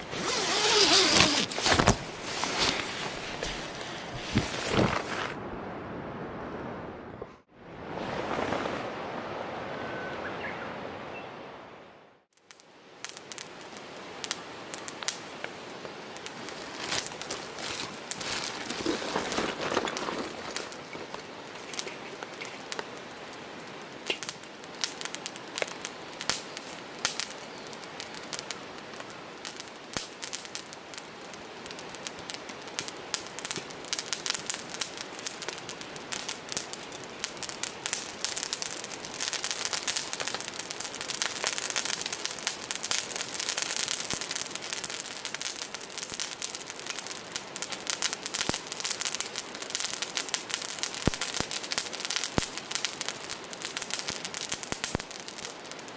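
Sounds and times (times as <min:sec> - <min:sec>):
charcoal fire crackling and popping: 0:00.0 - 0:05.4, 0:12.4 - 0:55.9
fire hissing: 0:00.0 - 0:05.4.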